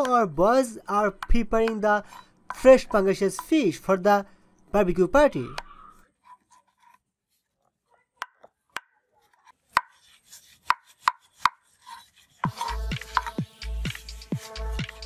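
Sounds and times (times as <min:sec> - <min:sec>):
knife striking wooden plank: 0:08.2 - 0:13.4
music with heavy beat: 0:12.4 - 0:15.0.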